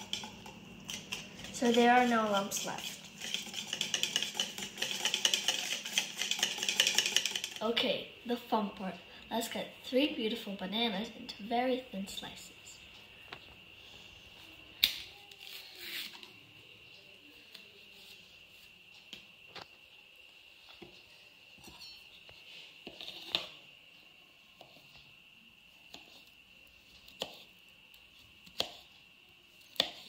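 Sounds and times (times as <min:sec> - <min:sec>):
faint high whine: 0:00.0 - 0:29.7.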